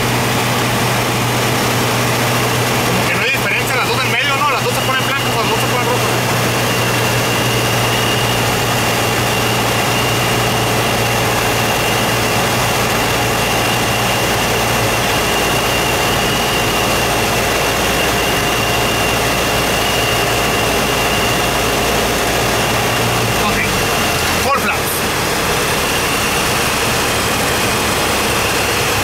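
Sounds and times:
aircraft engine drone in cabin: 0.0 - 29.0.

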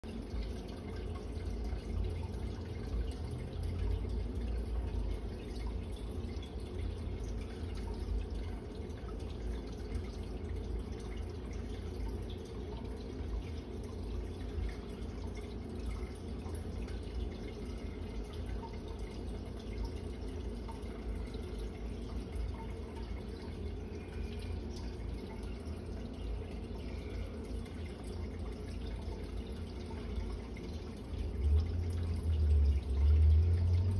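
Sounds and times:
water trickling and dripping: 0.0 - 33.9
low hum: 14.4 - 33.9.

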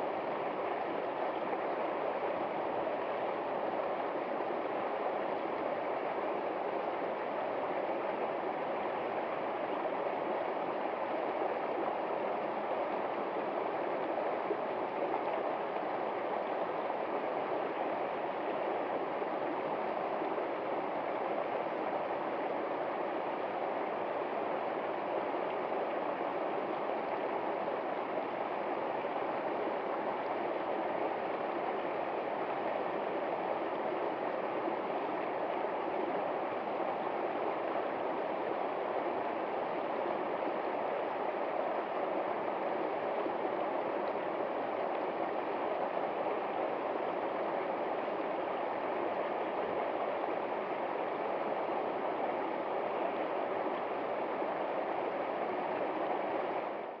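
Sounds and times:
stream flowing over rocks: 0.0 - 57.0.

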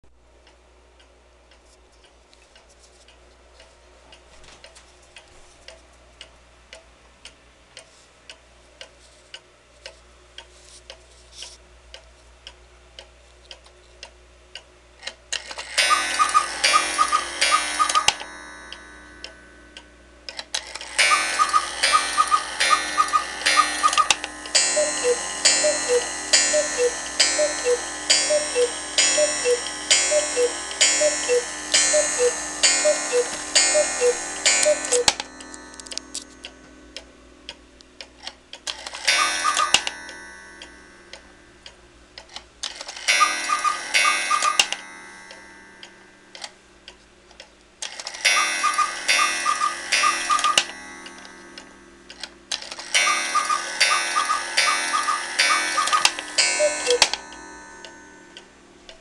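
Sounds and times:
clock ticking: 11.9 - 47.0, 47.9 - 59.0
cuckoo clock calling: 15.5 - 19.4, 20.6 - 36.6, 38.7 - 41.3, 42.6 - 45.5, 47.8 - 58.4.

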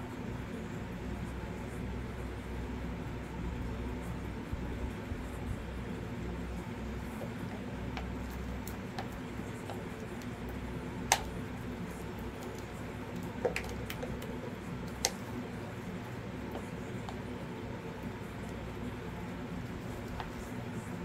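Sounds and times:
steady low hum: 0.0 - 21.0
spatula clicking and tapping: 7.0 - 20.8.

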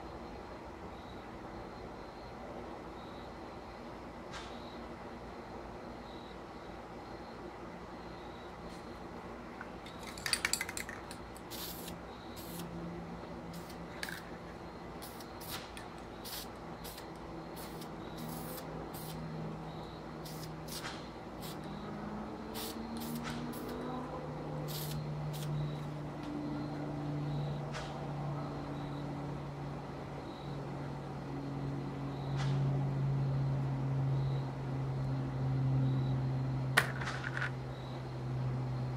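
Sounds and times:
spray can rattling: 10.0 - 12.6, 13.5 - 14.4, 22.6 - 23.8
short spray bursts: 11.4 - 12.7, 13.5 - 14.3, 15.0 - 19.2, 20.2 - 21.6, 22.5 - 23.8, 24.6 - 25.6
low steady drone: 11.6 - 36.8.

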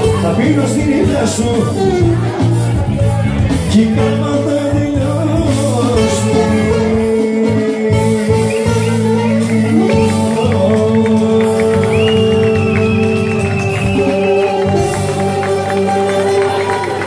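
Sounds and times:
live band with keyboard: 0.0 - 17.0
gliding melody line: 3.7 - 17.0.

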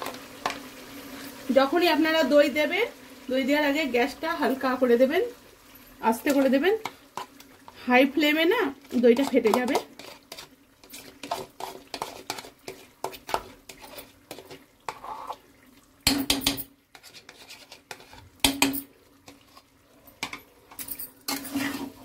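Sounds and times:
metal spoon scraping pot: 8.8 - 15.4, 16.4 - 19.7, 20.8 - 22.0.

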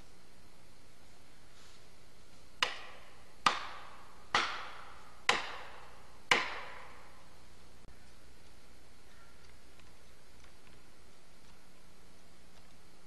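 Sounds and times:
hand tool striking hard: 2.6 - 7.2.

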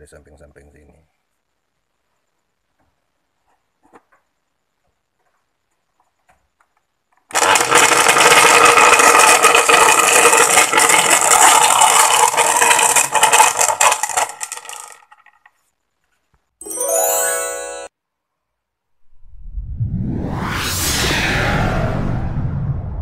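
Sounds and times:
blender motor rattling: 7.3 - 15.5.

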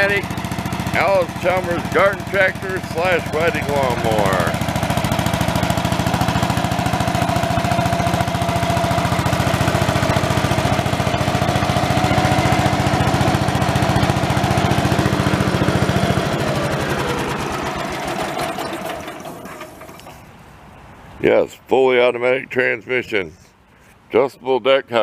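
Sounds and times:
garden tractor engine running: 0.0 - 20.3.

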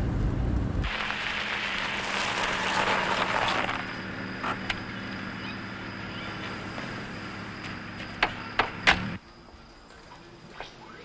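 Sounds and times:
tyres crunching on gravel: 0.8 - 8.6.

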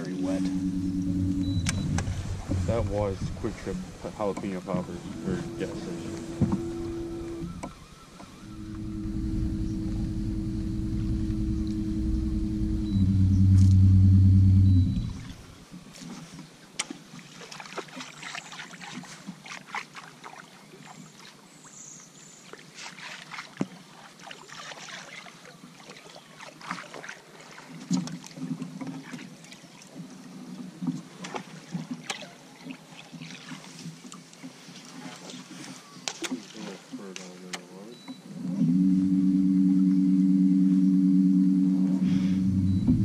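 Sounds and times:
low hum: 0.0 - 15.6, 38.4 - 43.0
water against hull: 0.0 - 21.4, 22.5 - 43.0.

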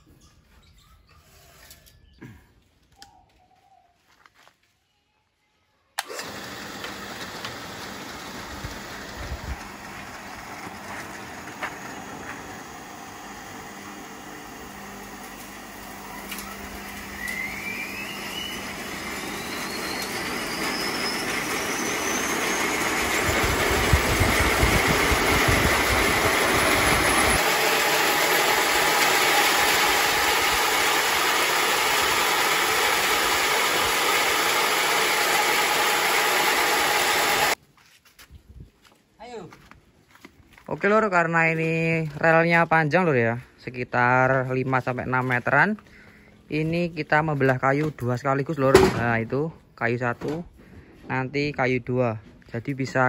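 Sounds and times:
band sawmill motor whine: 6.0 - 37.6.

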